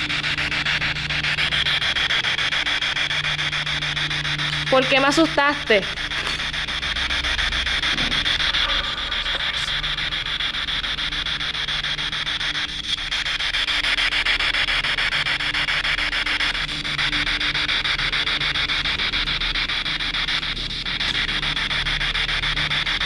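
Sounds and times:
chopped radio static: 0.0 - 13.3.

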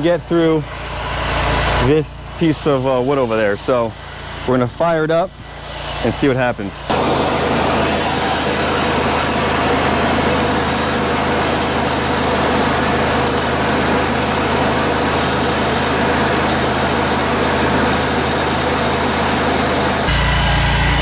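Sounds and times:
pump and motor hum: 0.0 - 21.0
water jet hissing against wood: 6.9 - 20.1.

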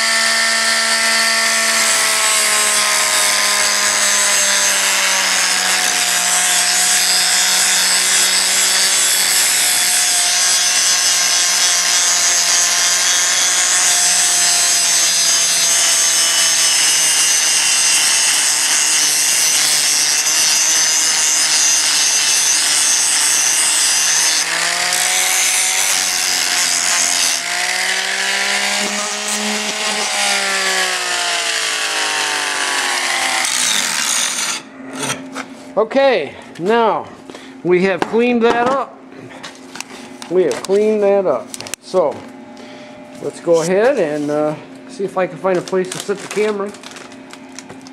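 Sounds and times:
angle grinder grinding steel: 0.0 - 35.5.

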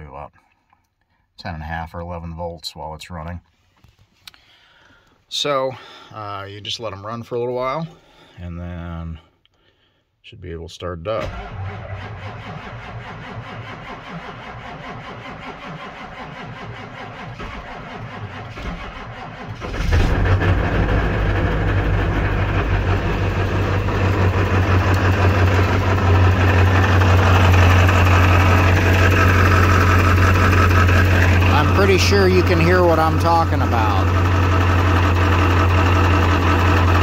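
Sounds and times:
diesel engine starting: 11.1 - 37.0
diesel engine idling loudly: 19.0 - 37.0.

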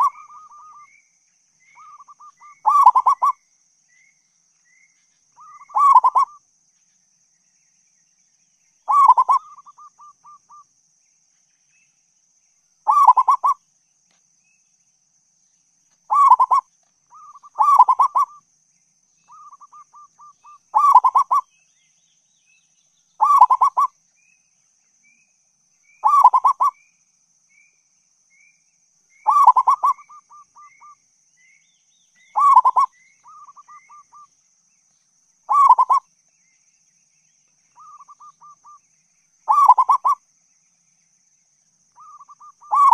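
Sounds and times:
dove cooing: 0.0 - 0.9, 1.8 - 3.4, 5.4 - 6.4, 8.9 - 10.4, 12.9 - 13.6, 16.1 - 18.4, 19.3 - 21.4, 23.2 - 23.9, 26.0 - 26.8, 29.3 - 30.7, 32.4 - 34.2, 35.5 - 36.0, 39.5 - 40.2, 42.0 - 42.9.

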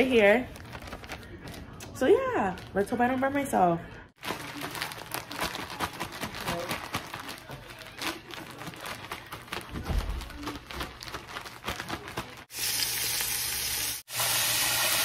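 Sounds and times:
plastic bag rustling: 0.0 - 3.2, 4.2 - 12.5
chicken frying in hot oil: 12.5 - 15.0.

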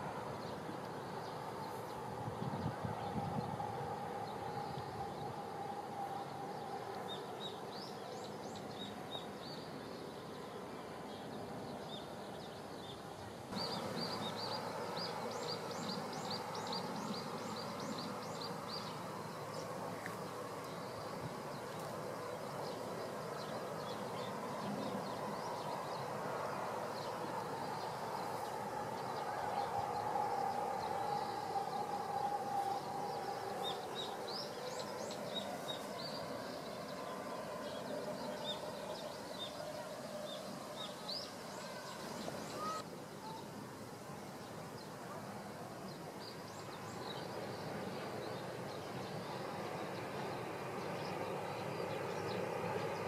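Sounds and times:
distant train rushing: 13.5 - 42.8, 46.4 - 53.0
bird chirping: 13.6 - 26.2.

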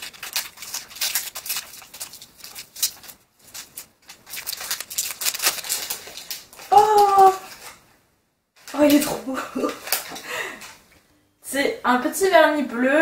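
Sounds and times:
packing tape crinkling and tearing: 0.0 - 7.8, 8.6 - 10.2.

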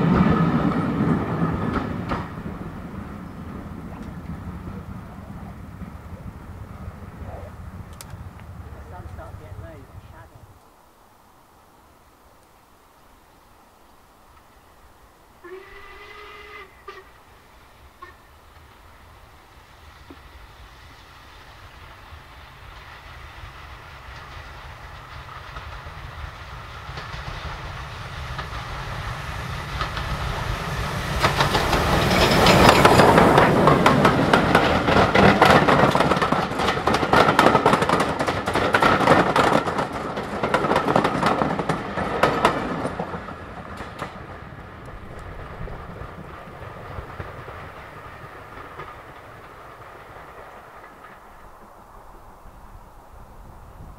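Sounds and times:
train wheels and exhaust clatter: 0.0 - 10.8, 15.2 - 53.9
steam locomotive whistle: 15.4 - 17.2, 18.0 - 18.3.

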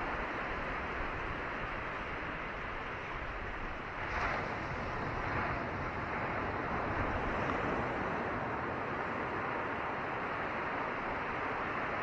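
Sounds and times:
ocean surf washing over stones: 3.8 - 12.0.

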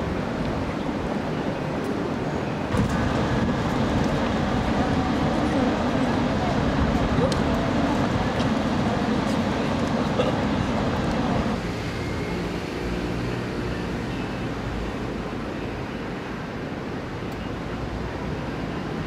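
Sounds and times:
distant traffic rumble: 0.0 - 19.0
murmur of people: 0.9 - 11.6.

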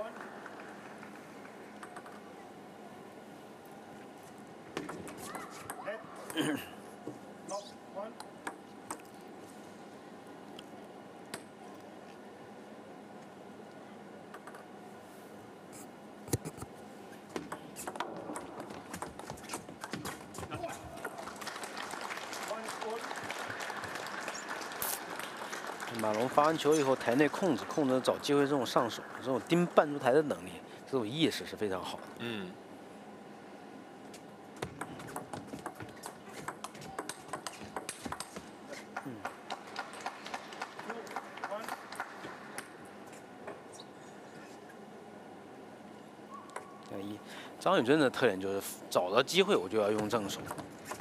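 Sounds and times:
table tennis ball clicking: 34.6 - 38.4.

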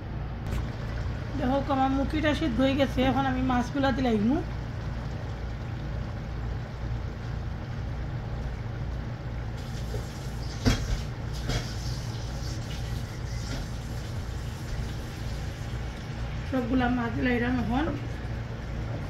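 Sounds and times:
low hum: 0.0 - 10.3
curry bubbling in a pot: 0.5 - 19.0.

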